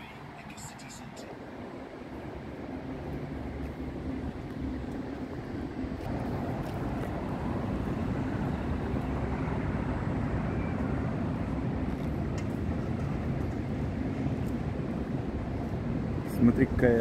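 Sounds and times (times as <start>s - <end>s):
tram rumbling on rails: 0.0s - 17.0s.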